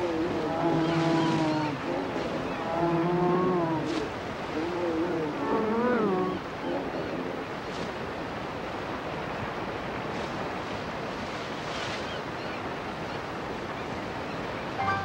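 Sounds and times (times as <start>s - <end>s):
bear growling: 0.0s - 4.0s
river rapids rushing: 0.0s - 13.6s.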